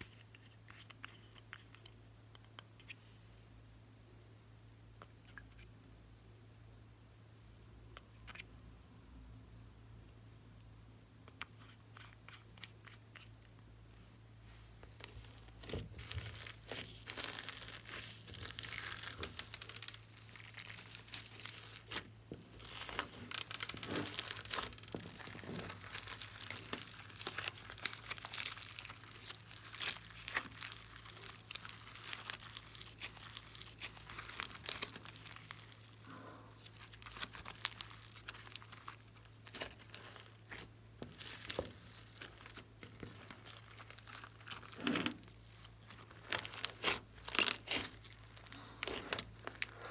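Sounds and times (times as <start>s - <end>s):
slime squished by hand: 14.8s - 49.9s.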